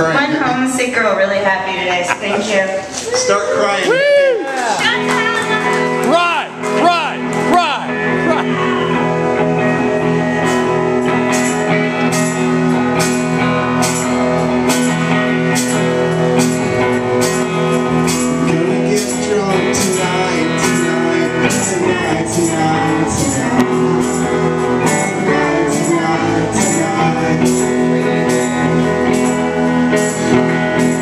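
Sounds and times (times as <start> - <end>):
indie rock band playing: 0.0 - 31.0
man singing: 6.1 - 8.5, 18.0 - 29.2.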